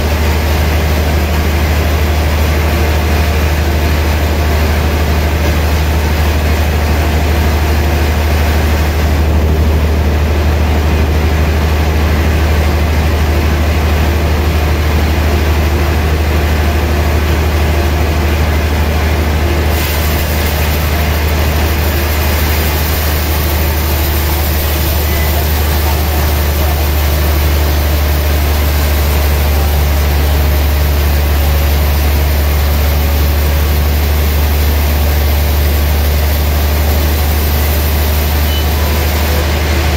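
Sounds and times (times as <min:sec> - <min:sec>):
loud low motor hum: 0:00.0 - 0:39.9
band saw blade cutting log: 0:19.7 - 0:39.9
bright high hiss: 0:19.7 - 0:39.9.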